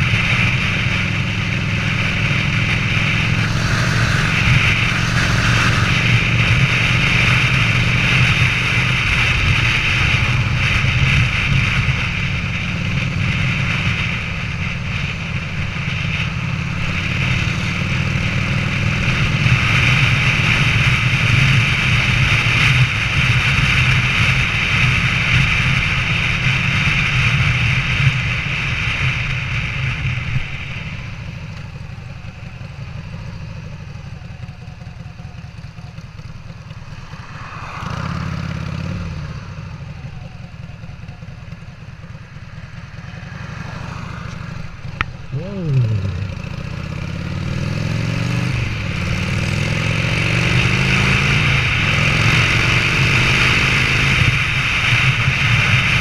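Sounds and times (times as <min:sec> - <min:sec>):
motorcycle engine cruising: 0:00.0 - 0:56.0
wind rushing: 0:01.6 - 0:13.9, 0:36.5 - 0:40.1.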